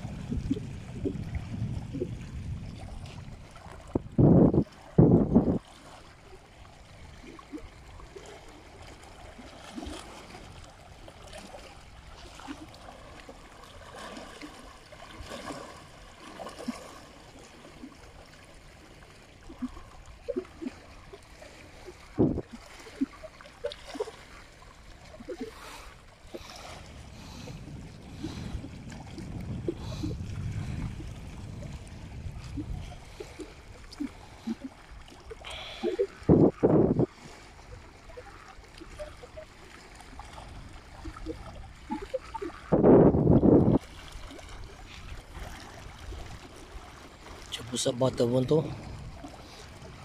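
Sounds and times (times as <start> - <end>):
wind rumble on microphone: 0.0 - 8.1, 21.7 - 23.2, 25.0 - 39.5, 40.1 - 50.0
small waves lapping on rocks: 0.0 - 50.0.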